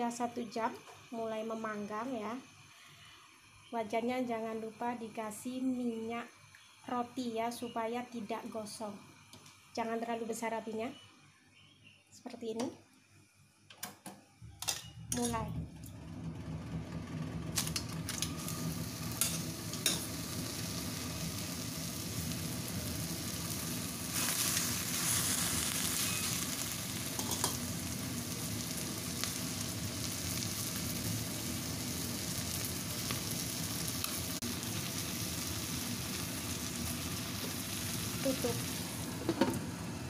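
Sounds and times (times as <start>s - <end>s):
chicken sizzling in a wok: 0.0s - 8.0s, 17.6s - 40.0s.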